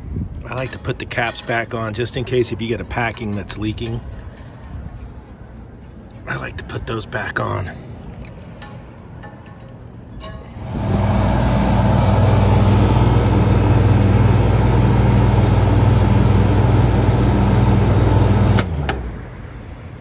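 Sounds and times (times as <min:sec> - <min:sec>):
condensing unit humming: 0:10.2 - 0:20.0.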